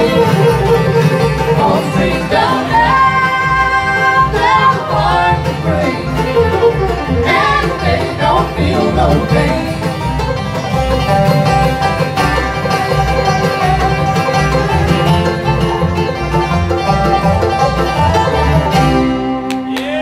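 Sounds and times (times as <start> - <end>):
rolling banjo: 0.0 - 19.7
bluegrass band playing: 0.0 - 19.8.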